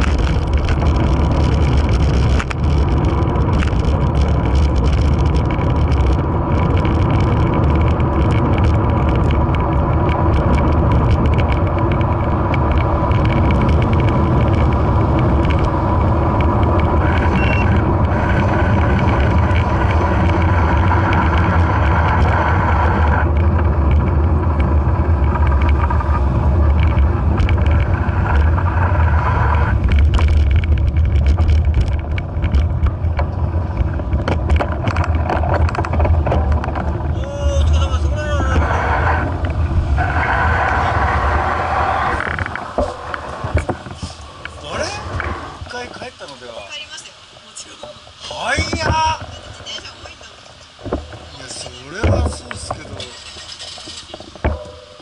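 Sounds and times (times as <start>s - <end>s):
wind on microphone: 0.0s - 45.8s
cars passing: 0.0s - 46.5s
bicycle road rumble: 0.0s - 55.0s
knocks from road bumps: 29.6s - 44.2s, 50.8s - 53.1s, 53.7s - 55.0s.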